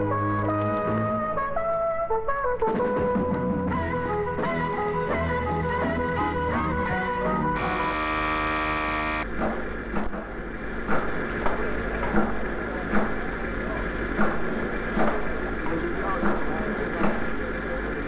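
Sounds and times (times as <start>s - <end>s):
electric alarm buzzer: 7.6s - 9.3s
steady hum: 7.6s - 15.6s.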